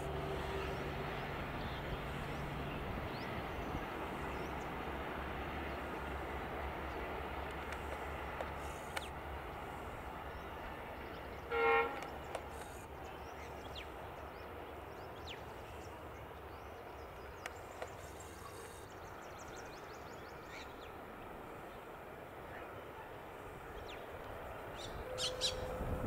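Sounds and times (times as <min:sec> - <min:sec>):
distant trains rumbling: 0:00.0 - 0:26.0
locomotive horn toot: 0:11.5 - 0:12.2.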